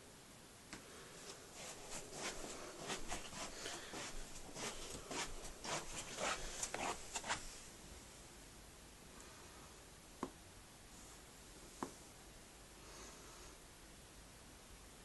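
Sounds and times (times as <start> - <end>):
soft footsteps on carpet: 1.2 - 7.6.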